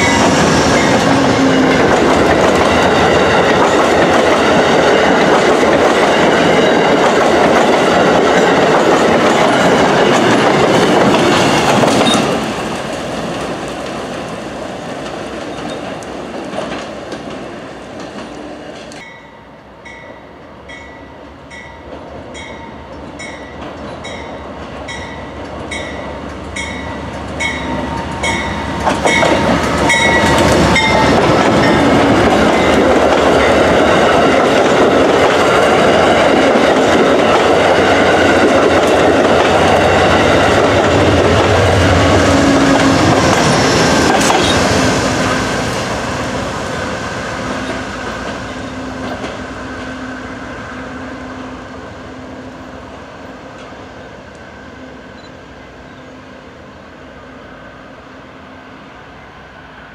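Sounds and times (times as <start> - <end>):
train rumble and wheel clatter: 0.0 - 59.9
train station bell ringing: 19.0 - 33.6.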